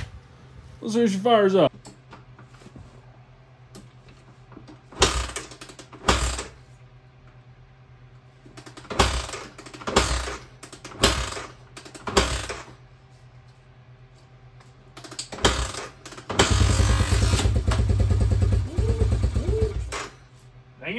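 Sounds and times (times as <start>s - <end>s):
engine kick-start cranking: 15.1s - 20.2s.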